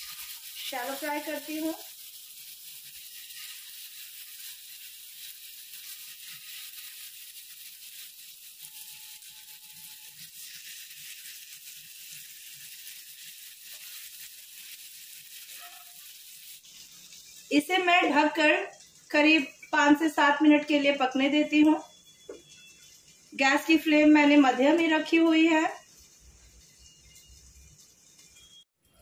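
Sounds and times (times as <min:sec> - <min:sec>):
chicken sizzling in hot oil: 0:00.0 - 0:29.0.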